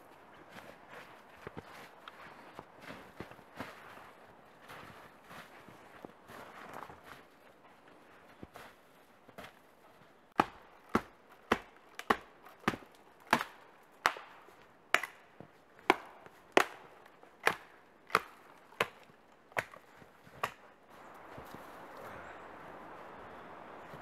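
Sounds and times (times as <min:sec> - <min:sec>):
hand tool chopping: 0:10.4 - 0:15.2, 0:15.8 - 0:20.6.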